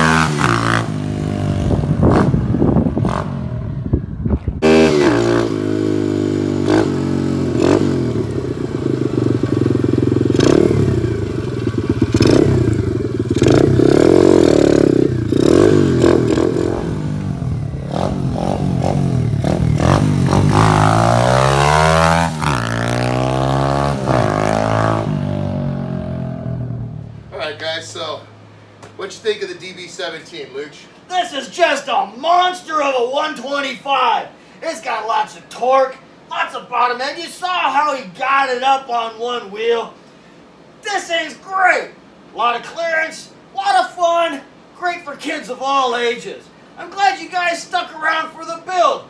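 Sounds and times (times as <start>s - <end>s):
dirt bike engine revving: 0.0s - 3.7s, 4.6s - 27.0s.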